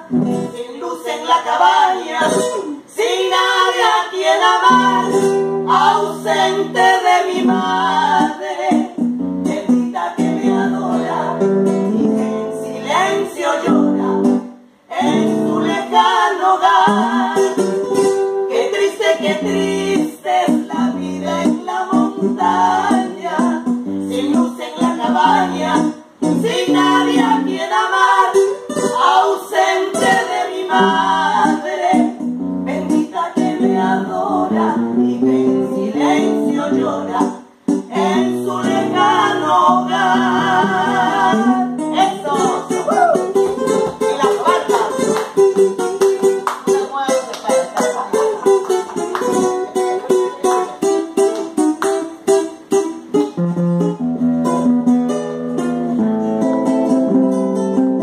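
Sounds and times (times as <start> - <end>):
women singing a duet: 0.0 - 45.5
acoustic guitar: 0.0 - 58.0.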